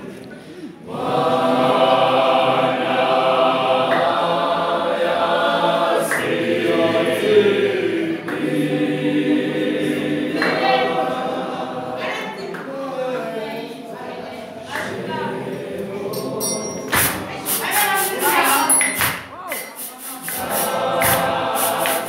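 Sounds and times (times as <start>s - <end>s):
choir singing unaccompanied: 0.0s - 19.0s, 19.6s - 22.0s.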